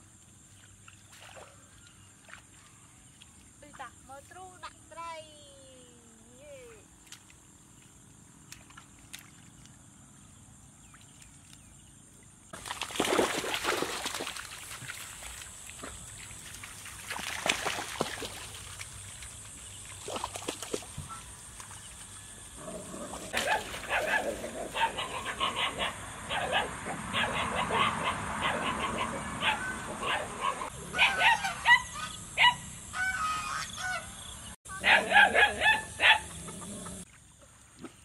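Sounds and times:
pack of dogs barking: 0:23.1 - 0:32.7, 0:34.8 - 0:37.0.

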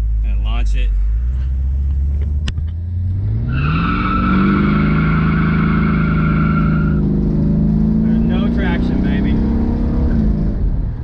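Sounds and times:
car engine revving hard: 0:02.9 - 0:10.8
tires squealing with wheelspin: 0:03.3 - 0:09.4.

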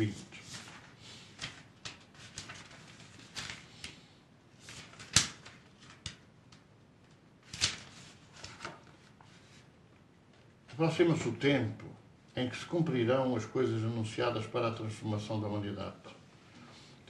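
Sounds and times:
book pages rustling: 0:00.1 - 0:04.0, 0:04.6 - 0:06.2, 0:07.1 - 0:09.7
small clicks of paper pages: 0:00.4 - 0:04.0, 0:04.6 - 0:09.4.

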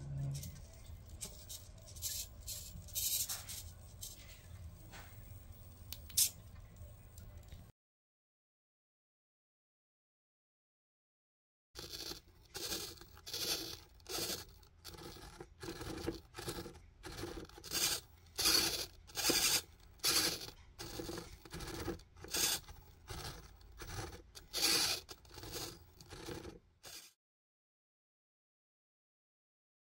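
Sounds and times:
servos whirring in grating bursts: 0:11.8 - 0:27.1.

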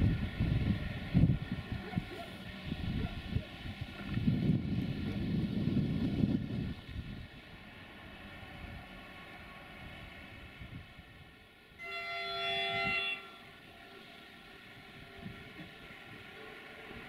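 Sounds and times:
train horn chord: 0:11.8 - 0:13.8.

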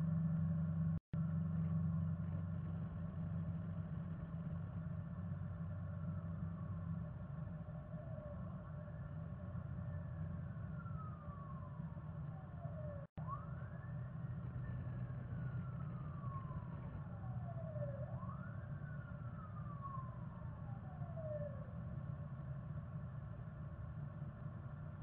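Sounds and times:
siren wailing: 0:05.9 - 0:22.2.

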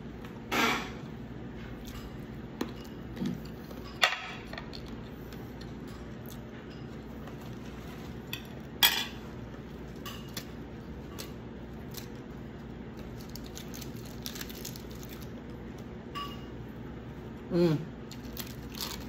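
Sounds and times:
low room hum: 0:00.0 - 0:19.0
lettuce leaves crackling: 0:11.2 - 0:15.5, 0:18.1 - 0:19.0.

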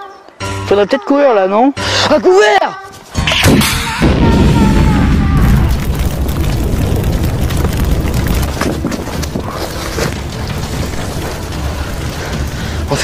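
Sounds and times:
scattered crackles: 0:02.9 - 0:13.0
explosion rumble: 0:03.3 - 0:13.0.

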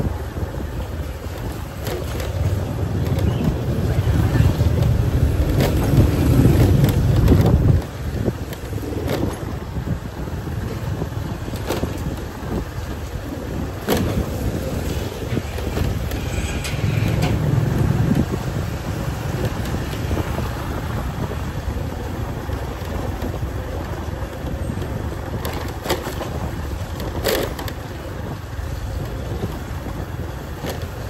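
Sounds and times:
motorbike engine and road rumble: 0:00.0 - 0:31.0
wind buffeting microphone: 0:00.0 - 0:31.0
brief sharp street sounds: 0:13.8 - 0:20.4.

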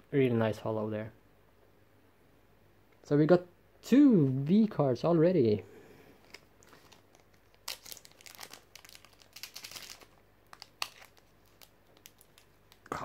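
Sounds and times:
foil wrapper crinkling and tearing: 0:06.2 - 0:12.9.

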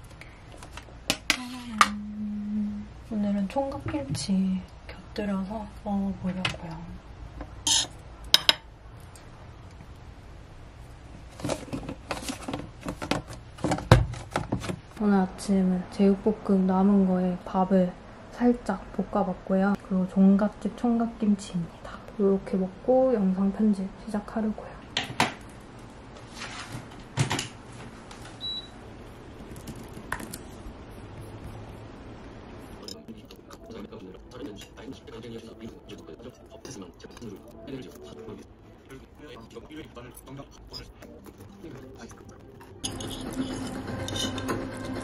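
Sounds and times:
low steady hum: 0:00.0 - 0:45.0.

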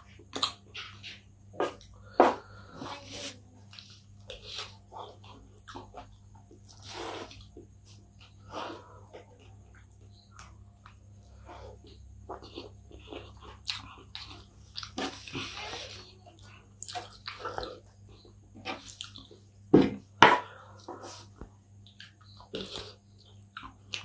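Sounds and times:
wet chewing mouth sounds: 0:09.1 - 0:19.4.

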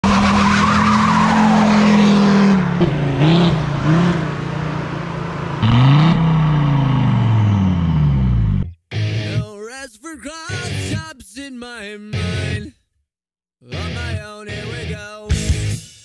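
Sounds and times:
diesel engine revving hard: 0:00.0 - 0:08.7.

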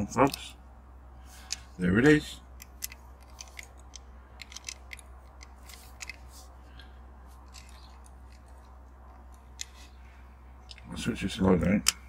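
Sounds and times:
toy car clicks and taps: 0:02.6 - 0:06.2.

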